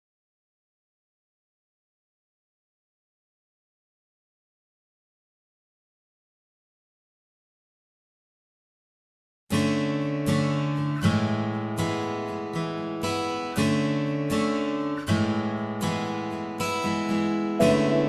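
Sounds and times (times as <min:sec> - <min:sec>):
acoustic guitar strumming: 0:09.6 - 0:18.0.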